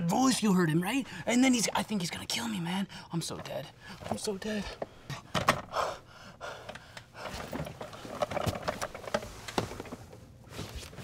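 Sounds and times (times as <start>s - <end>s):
man panting and gasping: 4.8s - 7.5s.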